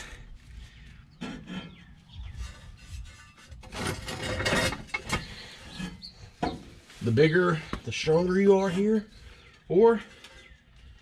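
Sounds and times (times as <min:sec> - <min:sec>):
metal scraping: 0:01.1 - 0:07.2.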